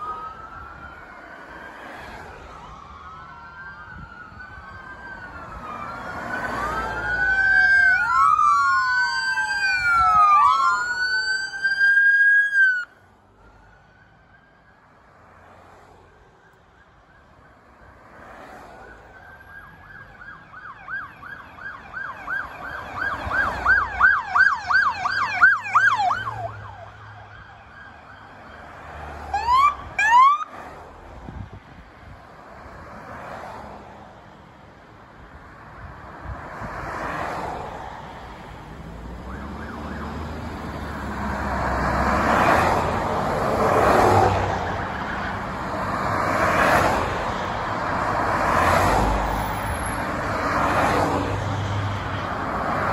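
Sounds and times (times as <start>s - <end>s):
police siren yelping: 0.0s - 12.9s, 18.8s - 30.5s, 39.1s - 51.0s
short rising siren whoops: 0.0s - 12.9s, 39.2s - 40.3s
cars passing by: 0.0s - 52.9s.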